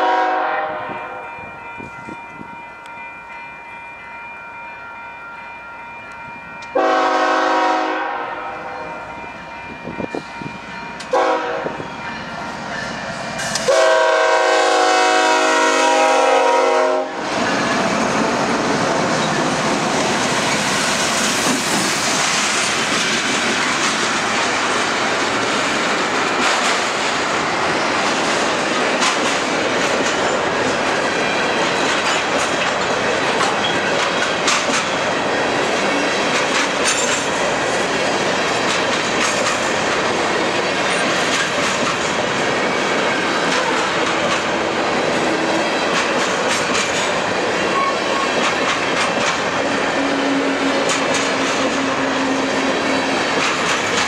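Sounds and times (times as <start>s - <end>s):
locomotive horn chord: 0.0s - 1.4s, 6.7s - 9.0s, 11.1s - 11.8s, 13.6s - 17.3s
freight train passing: 0.0s - 54.0s
wheels clicking over rail joints: 17.4s - 54.0s.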